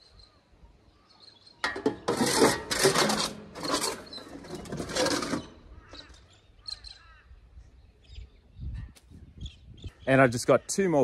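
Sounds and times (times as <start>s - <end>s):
shovel scraping manure: 1.6s - 6.2s.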